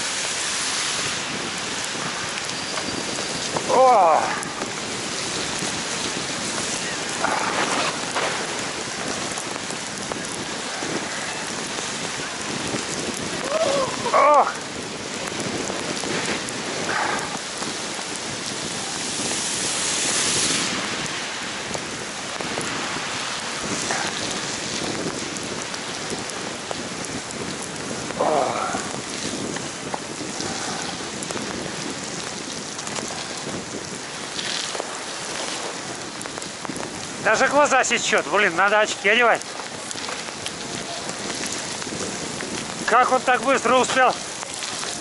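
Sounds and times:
heavy rain and tyre spray: 0:00.0 - 0:45.0.

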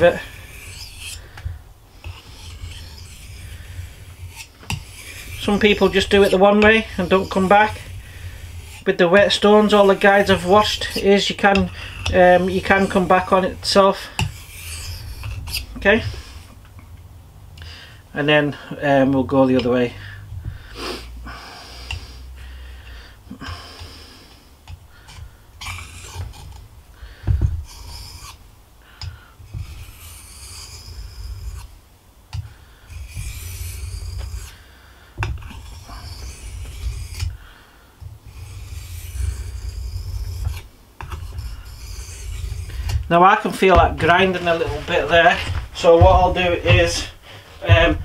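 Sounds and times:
knife scraping on whetstone: 0:00.0 - 0:01.4, 0:02.0 - 0:16.6, 0:25.0 - 0:26.6, 0:27.6 - 0:28.4, 0:29.0 - 0:34.6, 0:35.2 - 0:37.4, 0:38.3 - 0:48.0
low rumble of handling: 0:38.0 - 0:48.0.

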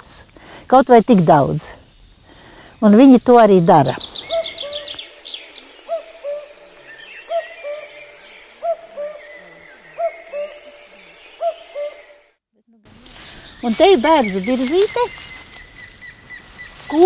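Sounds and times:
faint songbirds singing: 0:00.0 - 0:17.0
cuckoo calling: 0:03.6 - 0:17.0.

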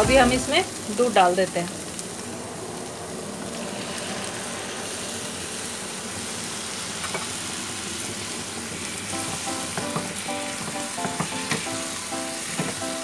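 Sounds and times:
food sizzling in a pan: 0:00.0 - 0:13.0
background music: 0:09.1 - 0:13.0
knock: 0:09.3 - 0:11.7.

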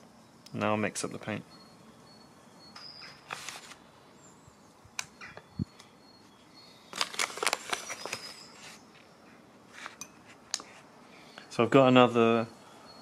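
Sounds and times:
paper bag crinkling: 0:03.1 - 0:03.8, 0:06.9 - 0:08.9.

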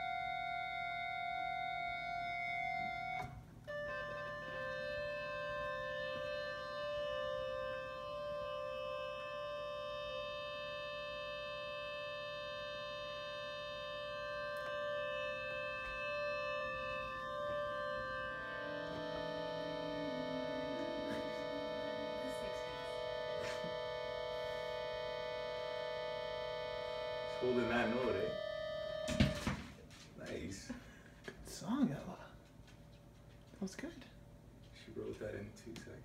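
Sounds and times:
electric organ held note: 0:00.0 - 0:30.4.

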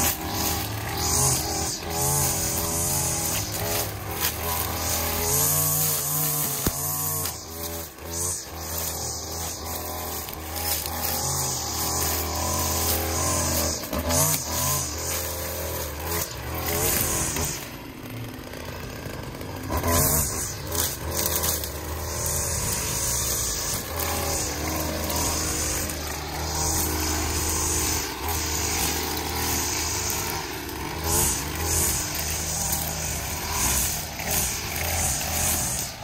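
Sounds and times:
string trimmer engine running: 0:00.0 - 0:36.0.

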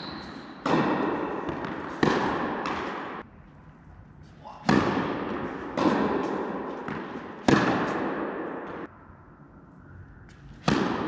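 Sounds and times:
tennis ball struck by rackets: 0:00.2 - 0:03.2, 0:04.6 - 0:08.9, 0:10.5 - 0:11.0.

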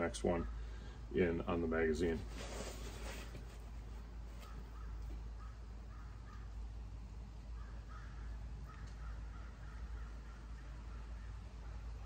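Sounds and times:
crows cawing: 0:04.4 - 0:06.6, 0:07.5 - 0:11.9.

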